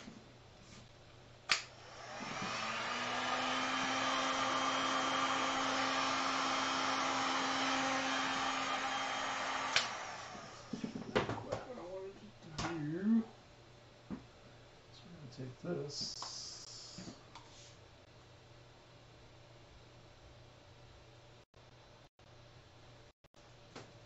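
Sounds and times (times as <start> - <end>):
heat gun fan running: 1.4 - 13.0.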